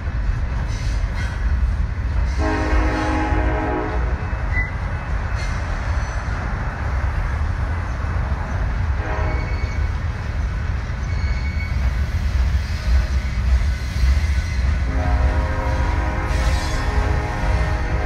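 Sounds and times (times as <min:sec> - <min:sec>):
freight train rumbling and clattering: 0:00.0 - 0:18.0.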